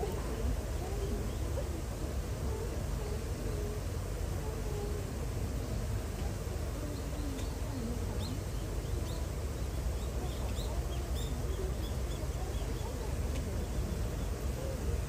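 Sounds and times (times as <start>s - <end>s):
small birds chirping: 5.6s - 15.0s.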